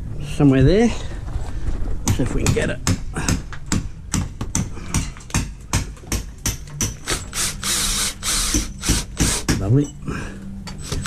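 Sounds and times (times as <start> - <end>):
drill driving screw into wood: 7.0 - 9.6, 10.8 - 11.0.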